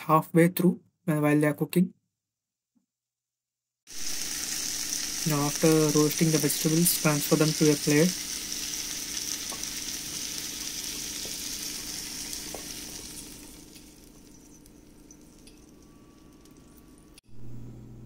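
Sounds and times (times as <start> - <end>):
oil sizzling in a pan: 3.9 - 17.2.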